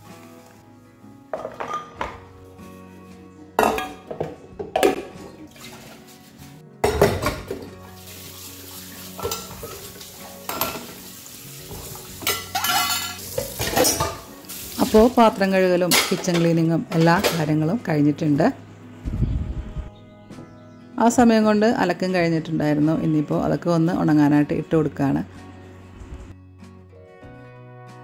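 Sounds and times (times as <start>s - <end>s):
soft background music: 0.0s - 28.0s
dishes clanking in a steel sink: 1.3s - 2.2s, 3.6s - 5.9s, 6.8s - 7.7s, 9.2s - 11.0s, 11.7s - 14.3s, 15.9s - 17.5s
tap water running: 5.4s - 6.1s, 7.1s - 16.2s.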